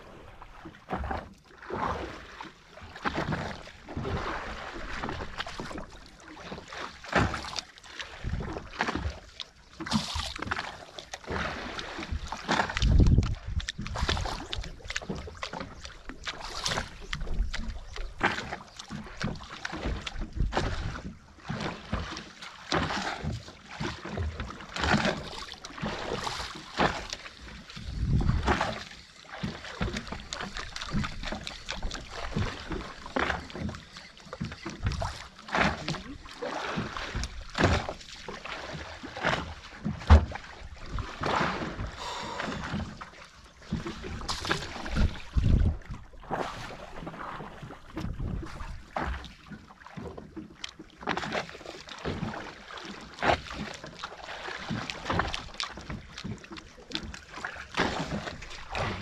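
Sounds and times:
water slapping against boat hull: 0.0s - 59.0s
wind buffeting microphone: 12.7s - 14.8s, 27.8s - 28.8s, 44.2s - 46.2s
sharp knock against boat: 40.0s - 40.4s.

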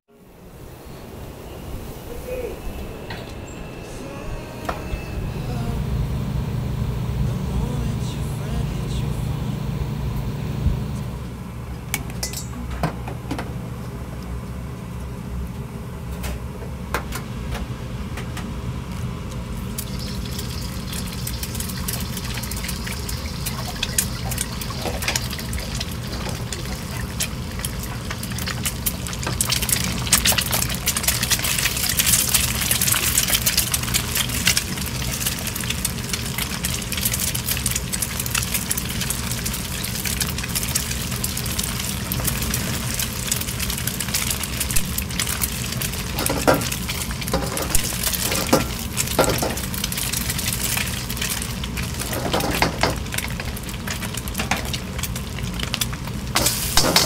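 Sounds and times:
burner and exhaust roar: 0.2s - 57.0s
utensils clinking: 12.1s - 12.6s, 56.4s - 57.0s
rice frying hiss: 19.0s - 57.0s.

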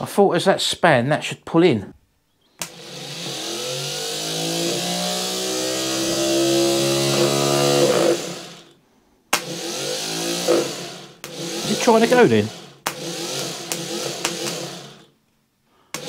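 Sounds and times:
starter motor whine: 2.6s - 8.8s, 9.4s - 15.1s.

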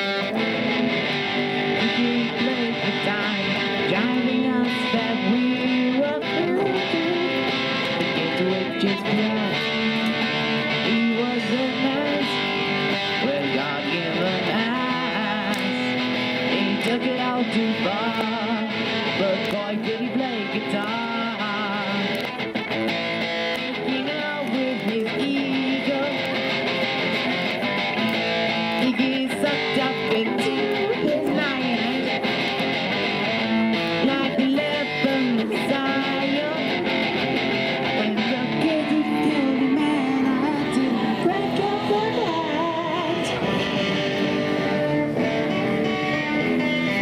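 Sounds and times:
electric guitar strumming: 0.0s - 47.0s
person singing into a microphone: 0.0s - 47.0s.

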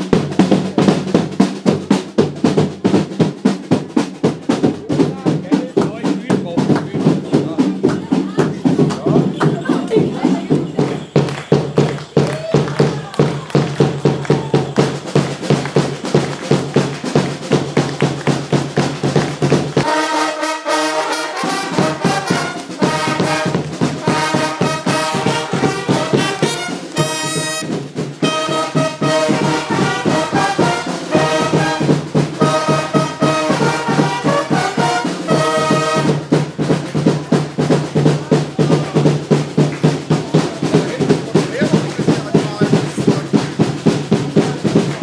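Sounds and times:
drumbeat: 0.0s - 45.0s
fanfare trumpets: 4.9s - 39.7s.

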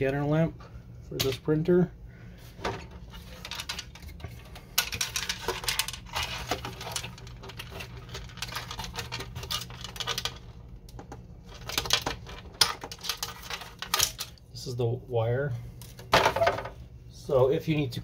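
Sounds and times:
plastic parts clicking and scraping: 2.6s - 14.4s.

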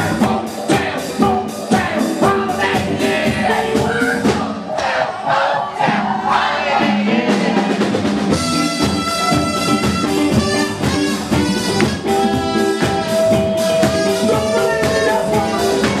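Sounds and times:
drum-kit beat: 0.0s - 5.0s, 5.8s - 16.0s
electric guitar: 7.7s - 16.0s
singer's voice: 13.1s - 16.0s.

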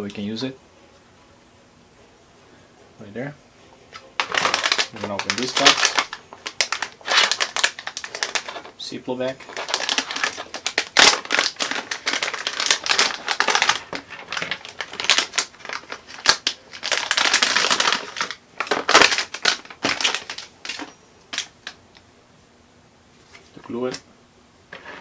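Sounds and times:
plastic bag crinkling: 4.0s - 21.8s.

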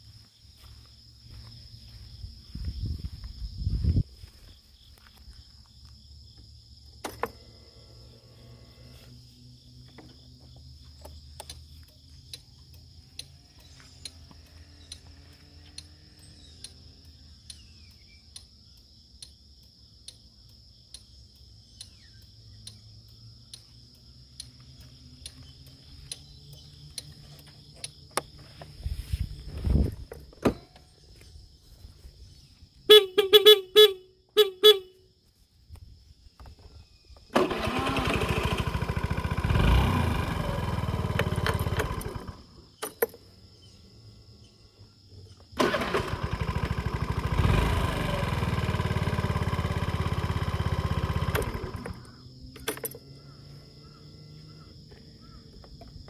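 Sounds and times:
faint regular tick: 11.0s - 15.9s, 16.6s - 17.7s, 18.3s - 28.3s
scooter horn short beeps: 32.9s - 35.1s.

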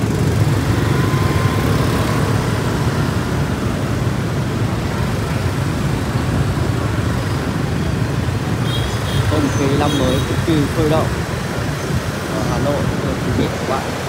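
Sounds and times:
road traffic rumble: 0.0s - 14.0s.

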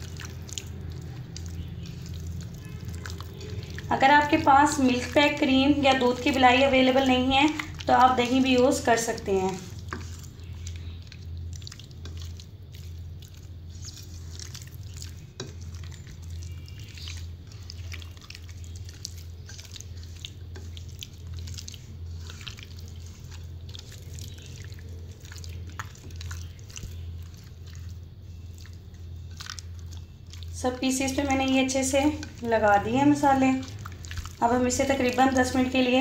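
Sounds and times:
hand squelching marinade: 0.0s - 36.0s
low steady hum: 0.0s - 36.0s.

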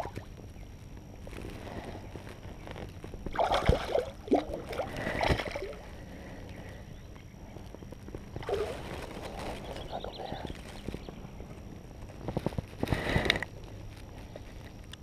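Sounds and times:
water splashing and sloshing: 3.3s - 5.9s, 8.4s - 9.7s.

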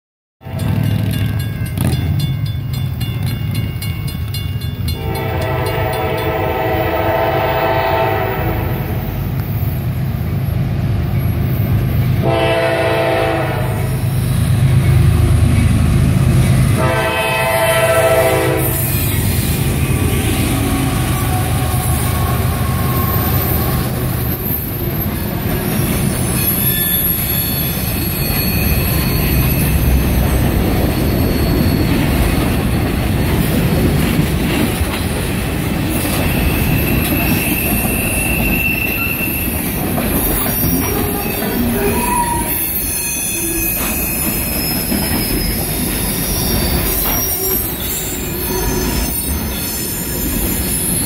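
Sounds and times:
train wheels clattering on rails: 0.5s - 7.3s, 18.0s - 51.0s
diesel locomotive rumble: 4.9s - 38.7s
locomotive horn blasts: 5.0s - 8.9s, 12.2s - 13.9s, 16.8s - 18.9s.

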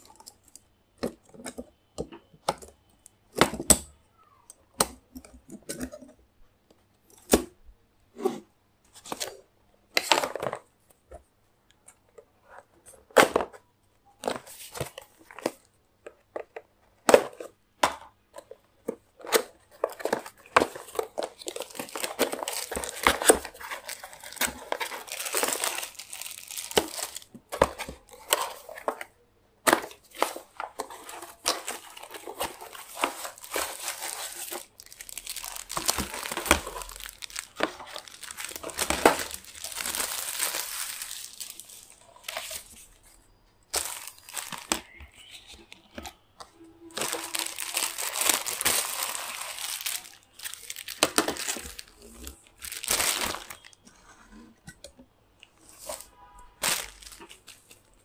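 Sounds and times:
plastic packaging crinkling and tearing: 19.2s - 29.1s, 29.7s - 46.2s, 46.8s - 53.8s, 55.6s - 58.0s.

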